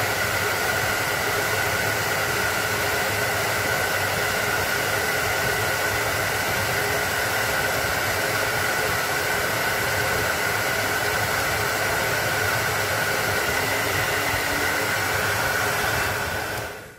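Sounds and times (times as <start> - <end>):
steady rushing noise with whine: 5.5 - 16.9.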